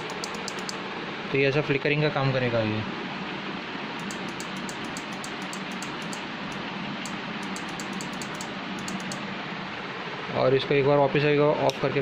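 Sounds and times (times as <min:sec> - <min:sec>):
relay clicking rapidly: 0:00.0 - 0:00.8, 0:04.0 - 0:09.2.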